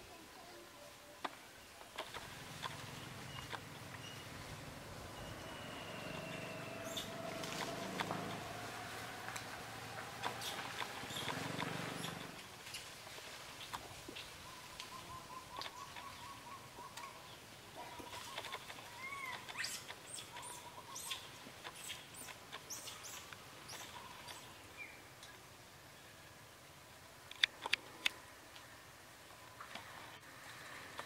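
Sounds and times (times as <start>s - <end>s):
rustling twigs and leaves: 1.3s - 25.4s
high bird chirps: 2.7s - 7.6s
thin steady whistle: 5.0s - 7.2s.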